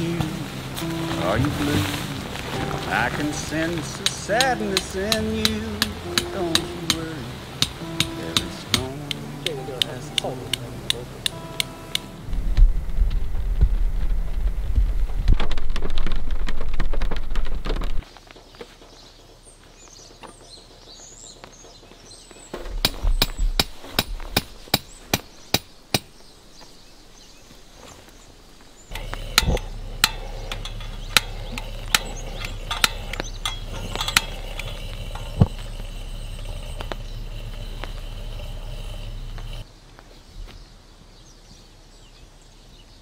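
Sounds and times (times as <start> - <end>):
steady background noise: 0.0 - 20.8, 21.4 - 43.0
tent pegs being hammered: 2.7 - 12.1, 22.6 - 26.2, 28.9 - 35.8.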